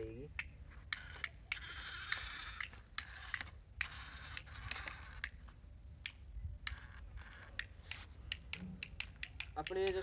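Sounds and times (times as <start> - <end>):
model tractor motor clicking and scraping: 0.9 - 5.4, 6.6 - 8.1.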